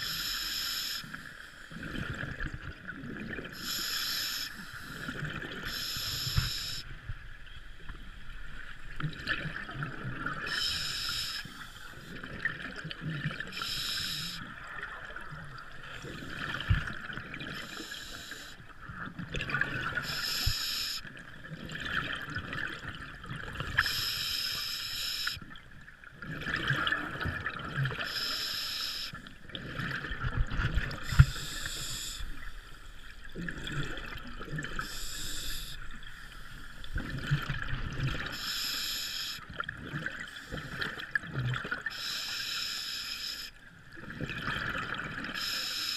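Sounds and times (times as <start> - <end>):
regulator inhale hiss: 0.0 - 1.7, 3.6 - 6.9, 10.5 - 12.1, 13.5 - 14.5, 17.5 - 18.6, 20.0 - 21.0, 23.8 - 25.4, 28.1 - 29.3, 31.0 - 33.1, 34.8 - 36.9, 38.3 - 39.5, 41.9 - 43.6, 45.4 - 45.9.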